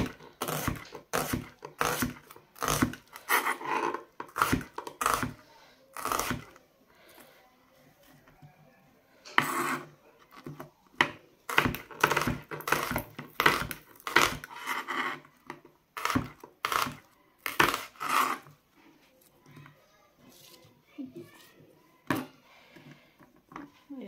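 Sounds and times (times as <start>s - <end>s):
knife slicing onion on wooden board: 0.0s - 6.6s, 11.5s - 18.5s.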